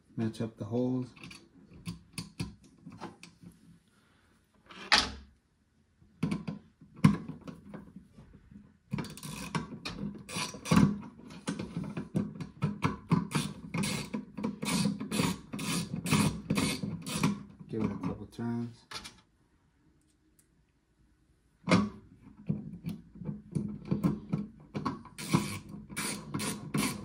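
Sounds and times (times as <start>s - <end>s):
screwdriver driving screw into metal: 13.3s - 17.4s, 25.2s - 27.0s.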